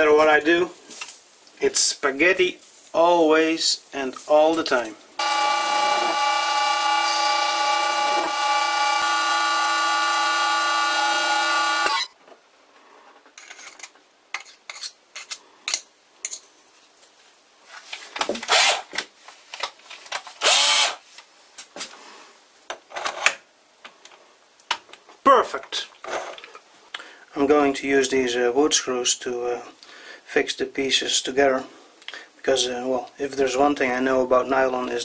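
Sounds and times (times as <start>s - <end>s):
lathe running with gear whine: 5.2s - 12.0s.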